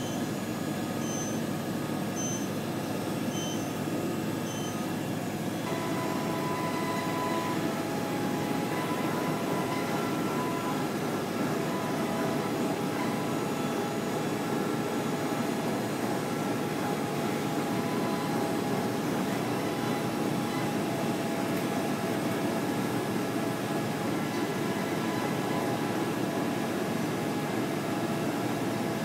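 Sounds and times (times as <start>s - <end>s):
machine mechanical hum: 0.0s - 29.0s.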